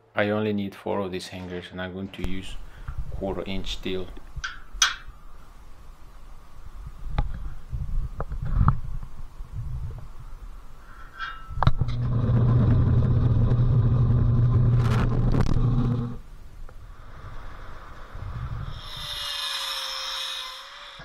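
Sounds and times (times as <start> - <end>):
steel plates knocking: 4.4 - 5.1
drill press humming: 11.8 - 16.2.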